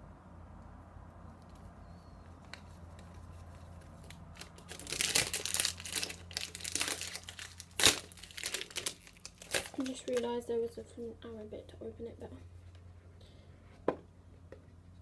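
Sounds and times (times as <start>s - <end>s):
plastic film crinkling and tearing: 3.0s - 10.4s.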